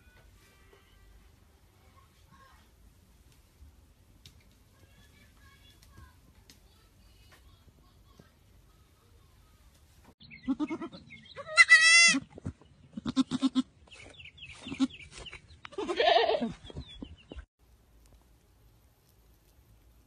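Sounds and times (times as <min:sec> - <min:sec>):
goat kid bleating: 0:10.3 - 0:12.2, 0:12.9 - 0:13.7, 0:15.7 - 0:16.6.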